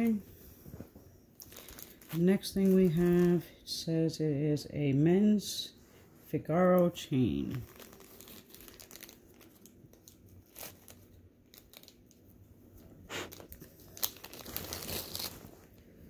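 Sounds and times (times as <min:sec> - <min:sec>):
plastic bag crinkling: 0:01.4 - 0:03.6, 0:07.2 - 0:12.4, 0:13.1 - 0:15.9.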